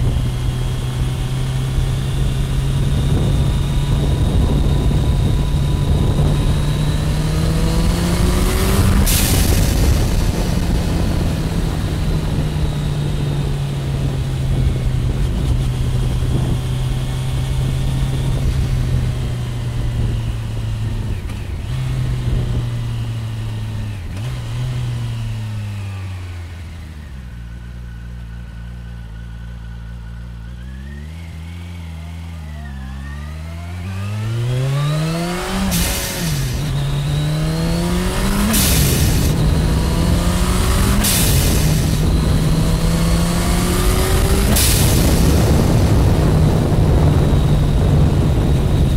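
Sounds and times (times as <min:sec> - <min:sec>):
motorcycle engine revving: 0:00.0 - 0:48.9
wind rush: 0:01.4 - 0:22.9, 0:34.0 - 0:48.9.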